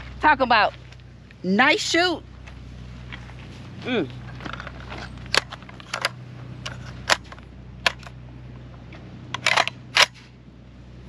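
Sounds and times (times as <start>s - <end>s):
magazine inserted into rifle: 4.5s - 8.1s, 9.4s - 10.2s
rifle clicks and clacks: 4.5s - 8.1s, 9.3s - 10.2s.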